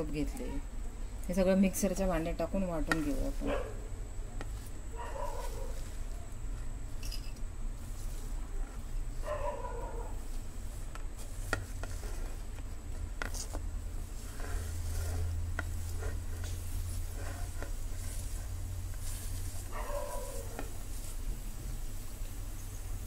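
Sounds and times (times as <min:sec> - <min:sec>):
steady low hum: 0:00.0 - 0:23.0
leaves dropping into steel jar: 0:05.2 - 0:09.1.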